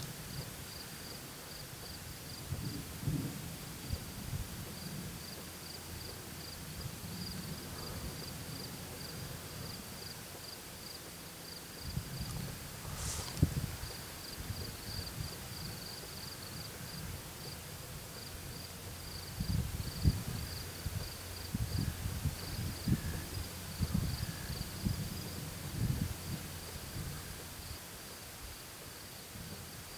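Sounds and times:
night insects trilling: 0:18.2 - 0:26.0.

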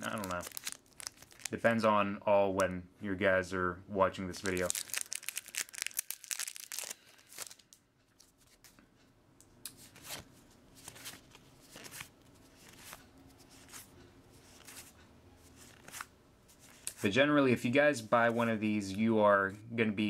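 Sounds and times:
foil wrapper crinkling and tearing: 0:00.0 - 0:01.6, 0:04.4 - 0:07.8
cards sliding papery strokes: 0:10.8 - 0:15.0, 0:15.6 - 0:17.1.

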